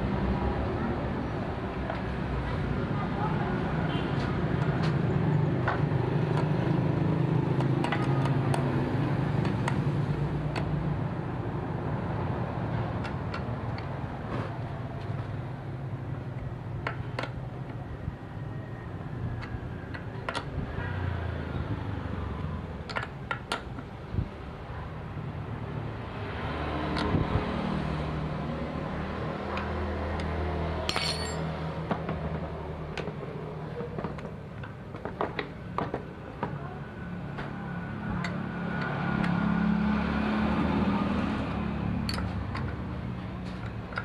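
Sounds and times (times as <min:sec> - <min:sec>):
metal tools clicking and knocking: 0:29.6 - 0:31.6, 0:42.0 - 0:42.8, 0:43.6 - 0:44.0.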